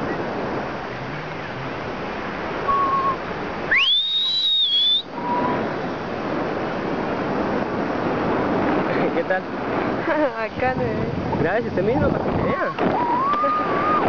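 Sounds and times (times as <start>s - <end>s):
wind rushing on microphone: 0.0s - 14.0s
person whistling: 2.7s - 5.6s.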